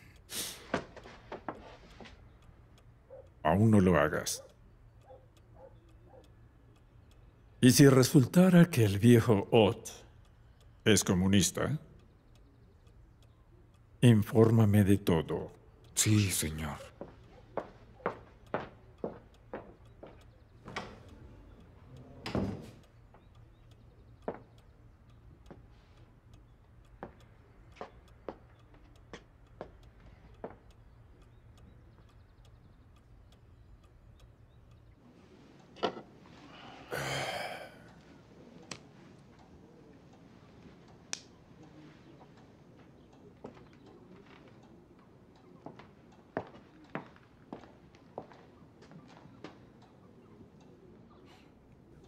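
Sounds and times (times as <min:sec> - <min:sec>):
clock ticking: 0:00.0 - 0:35.0, 0:35.6 - 0:52.0
door shutting: 0:22.2 - 0:22.8.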